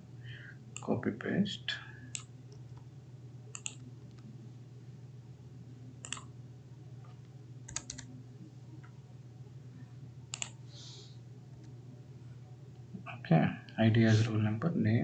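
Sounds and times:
faint low hum: 0.0 - 15.0
keyboard and mouse clicks: 3.6 - 3.9, 6.0 - 6.3, 7.7 - 8.1, 10.3 - 10.6.

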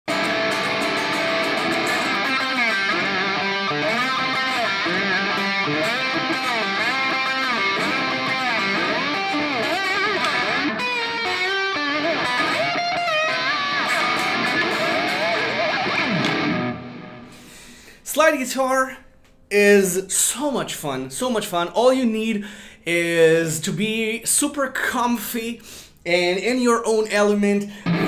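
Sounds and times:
distorted slide electric guitar solo: 0.1 - 17.6.

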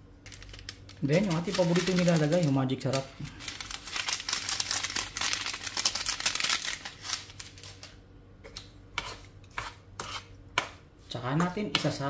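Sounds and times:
seasoning shaken from packet: 0.3 - 7.8.

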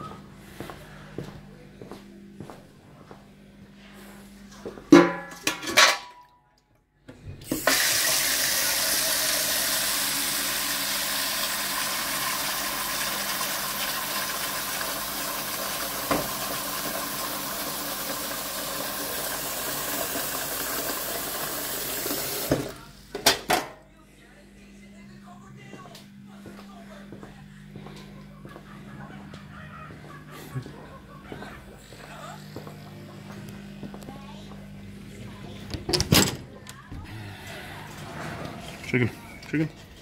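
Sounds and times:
tap water filling metal bowl: 7.5 - 22.7.

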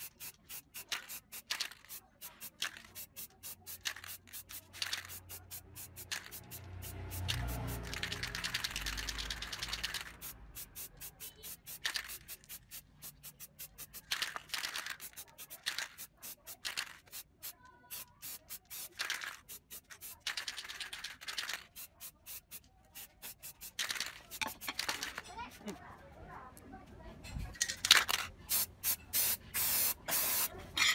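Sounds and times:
aerosol spray can hissing: 0.0 - 25.0, 28.5 - 30.5
rapid clicking: 7.3 - 10.2.

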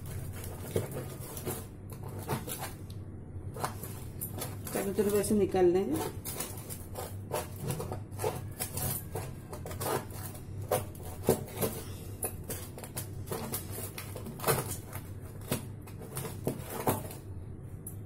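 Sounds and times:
steady low hum: 0.0 - 18.0
knife scraping metal tray: 3.6 - 14.8.

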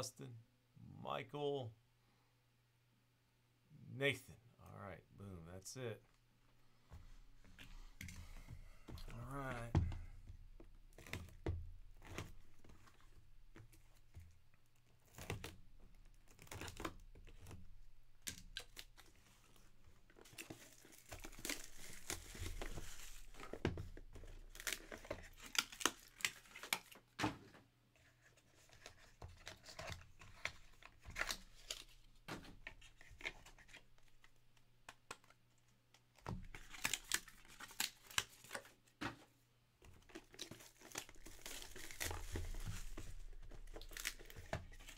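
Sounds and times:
cards rustling and snapping: 7.5 - 27.2, 28.0 - 44.9
plastic wrap crinkling and tearing: 14.7 - 27.2, 28.6 - 35.4, 36.0 - 38.8, 39.9 - 44.9.

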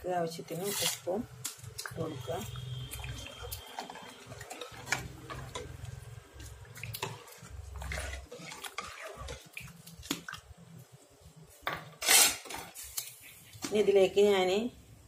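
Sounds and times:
water swishing and bubbling: 2.4 - 10.7.

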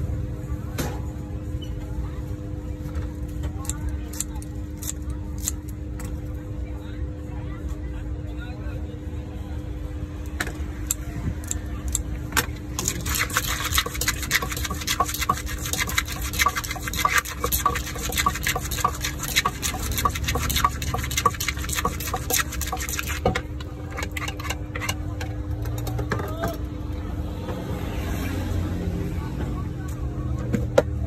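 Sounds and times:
wooden pestle pounding in mortar: 12.8 - 23.3
spoon tossing salad: 12.8 - 25.0.

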